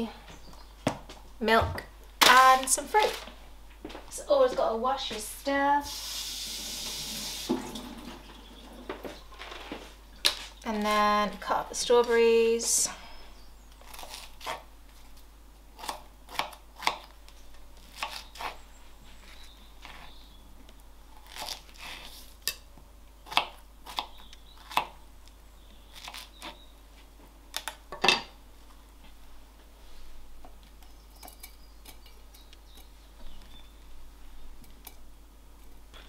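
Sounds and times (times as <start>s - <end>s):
knife crunching through fruit: 13.8s - 15.2s, 21.1s - 22.5s.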